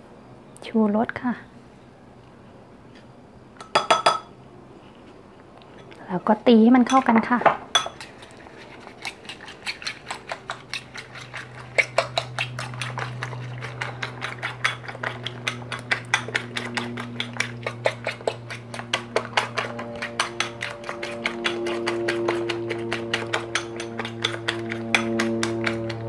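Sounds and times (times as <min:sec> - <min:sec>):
metal utensil clinking ceramic bowl: 0:19.5 - 0:25.9.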